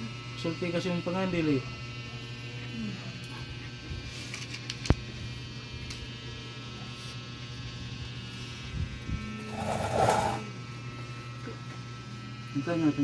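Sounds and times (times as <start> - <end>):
electrical hum: 4.8 - 13.0.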